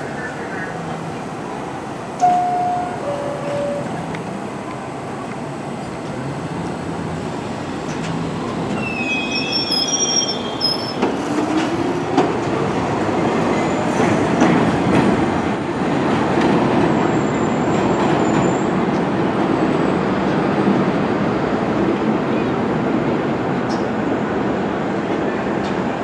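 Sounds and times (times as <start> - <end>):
clickety-clack of wheels on rails: 2.2 - 26.0
train wheels squealing: 8.7 - 11.4.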